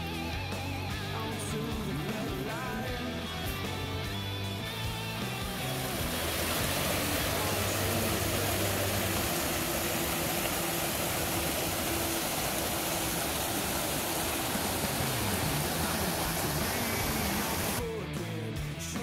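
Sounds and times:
creek rushing over rocks: 4.6s - 17.8s.

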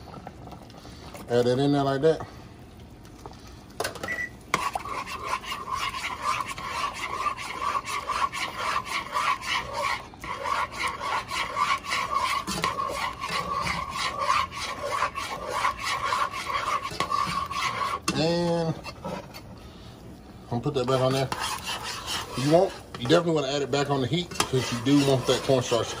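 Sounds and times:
metal spoon scraping saucepan: 4.5s - 19.5s, 20.7s - 26.0s.

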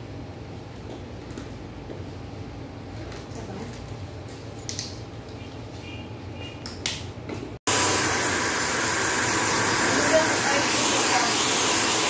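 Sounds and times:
hair dryer blowing: 7.7s - 12.0s.

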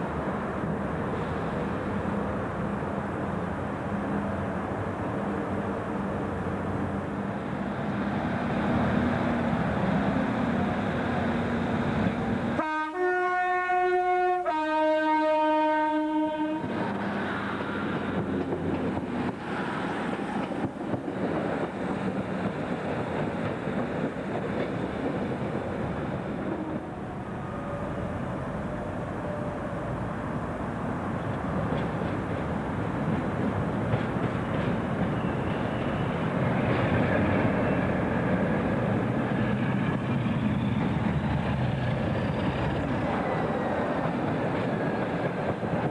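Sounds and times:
train rumbling: 0.0s - 45.9s
two-tone train horn: 12.6s - 16.7s.

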